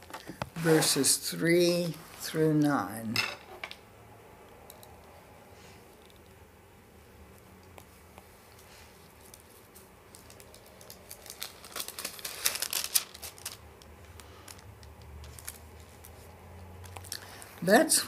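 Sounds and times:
thin paper pages rustling: 0:09.2 - 0:16.3.

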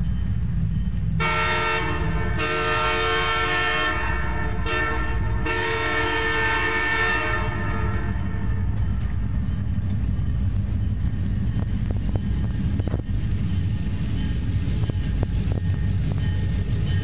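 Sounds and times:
low engine rumble: 0:00.0 - 0:17.0
locomotive air horn chord: 0:01.2 - 0:08.8.

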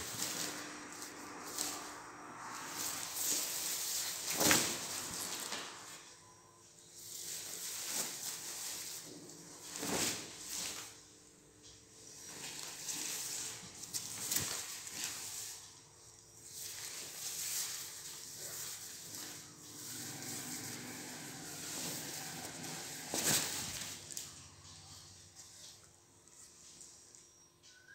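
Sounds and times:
silk fabric rustling: 0:00.0 - 0:06.0, 0:07.0 - 0:11.0, 0:12.2 - 0:15.6, 0:16.5 - 0:24.2.

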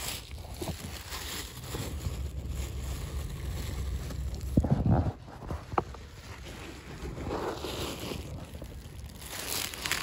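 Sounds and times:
wind on microphone: 0:03.5 - 0:06.0.

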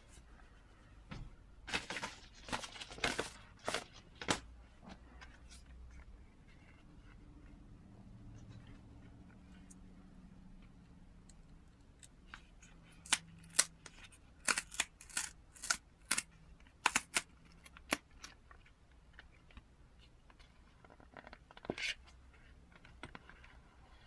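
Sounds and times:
paper crackling and rustling: 0:01.6 - 0:05.6.

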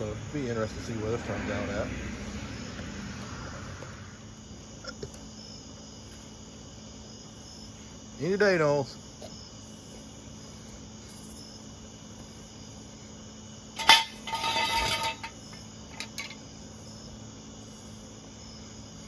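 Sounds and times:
crickets chirping: 0:00.0 - 0:19.0
clattering: 0:13.8 - 0:16.4.

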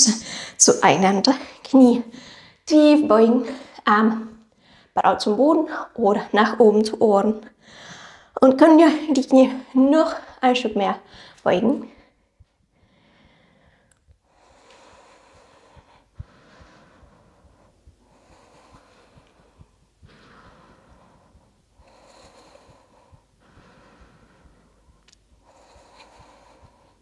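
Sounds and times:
woman breathing: 0:00.0 - 0:00.7, 0:01.4 - 0:05.0, 0:07.5 - 0:08.4, 0:11.0 - 0:27.0.

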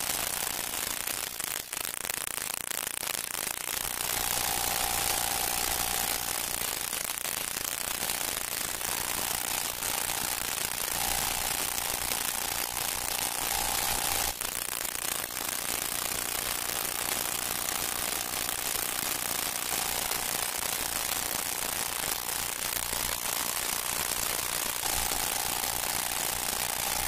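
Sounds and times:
record surface crackle and hiss: 0:00.0 - 0:27.0
faint steady tone: 0:07.8 - 0:14.4, 0:16.8 - 0:27.0.

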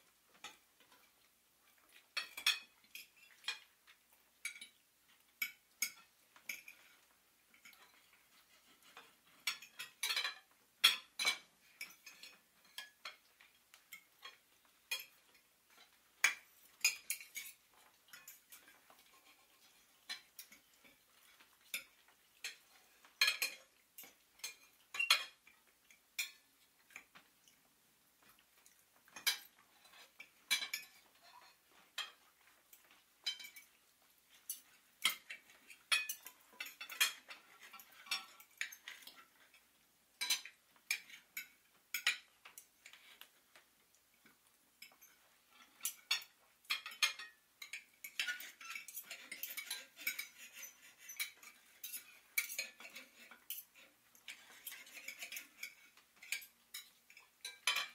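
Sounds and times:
light clicks and clinks: 0:28.2 - 0:39.6, 0:40.2 - 0:57.9.

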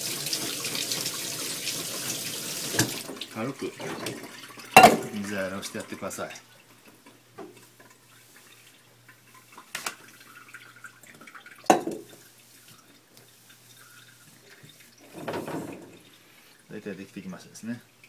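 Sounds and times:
low steady hum: 0:04.8 - 0:06.3
cloth wiping kitchen counter: 0:12.0 - 0:15.2.

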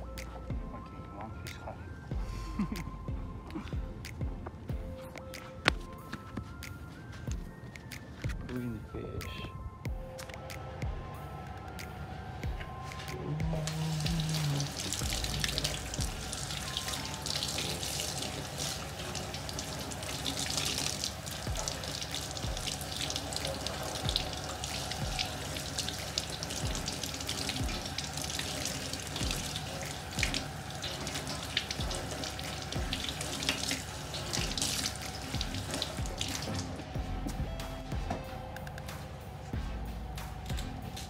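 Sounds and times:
tap water running into steel sink: 0:13.6 - 0:36.7.

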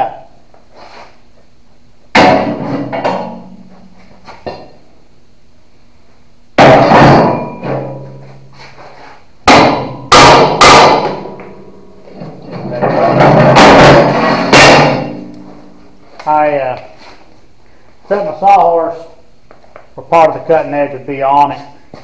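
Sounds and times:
hammer ringing on steel: 0:09.5 - 0:12.1.

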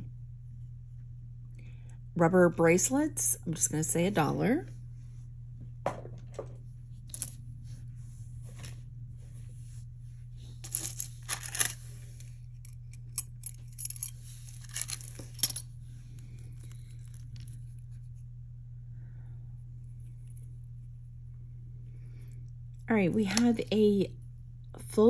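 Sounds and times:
low hum: 0:00.0 - 0:25.0
metal jewelry clinking: 0:10.6 - 0:11.9, 0:12.6 - 0:15.7.

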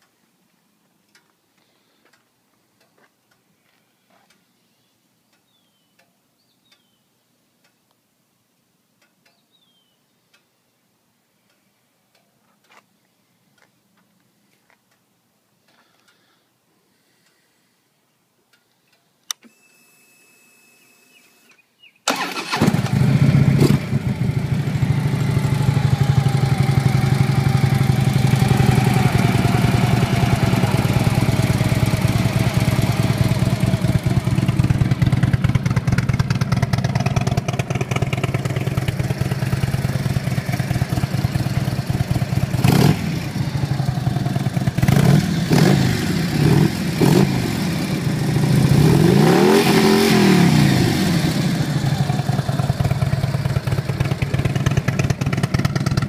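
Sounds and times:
motorcycle engine revving: 0:22.1 - 0:56.0
motorcycle engine starting: 0:22.1 - 0:56.0
motorcycle engine idling: 0:22.9 - 0:46.9, 0:50.9 - 0:56.0.

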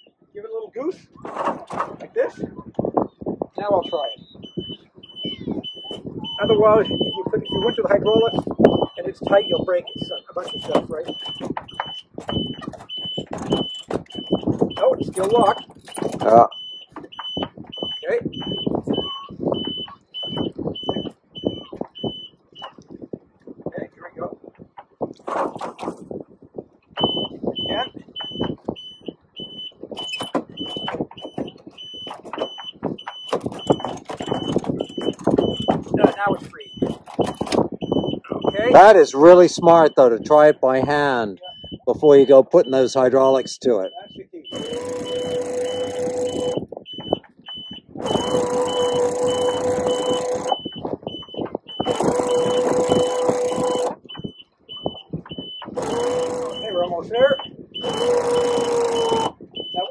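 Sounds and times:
electronic alarm beeping: 0:03.1 - 0:22.8, 0:27.0 - 0:59.9
hydraulic pump running: 0:44.5 - 0:47.2, 0:48.0 - 0:50.8, 0:51.6 - 0:54.2, 0:55.6 - 0:59.9.

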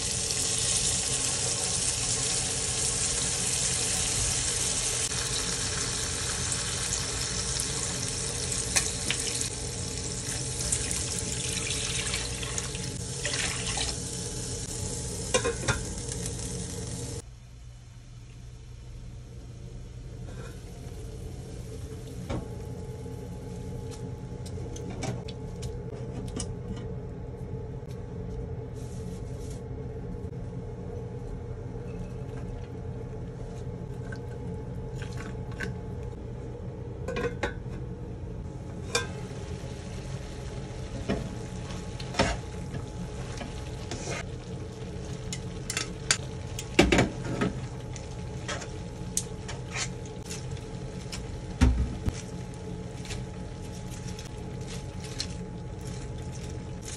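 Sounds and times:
noodles simmering and sizzling: 0:00.0 - 0:24.0, 0:38.4 - 0:56.9
steady hum: 0:00.0 - 0:56.9.

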